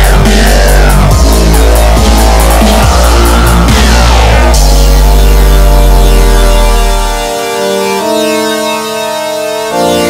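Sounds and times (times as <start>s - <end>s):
deep bass: 0.0s - 7.4s
synthesizer chords: 0.0s - 10.0s.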